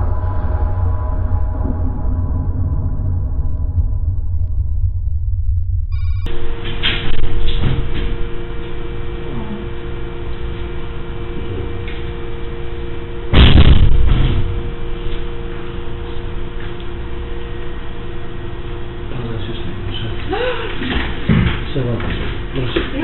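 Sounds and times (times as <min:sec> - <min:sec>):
electrical hum: 0:00.0 - 0:23.0
loud thud: 0:13.3 - 0:14.7.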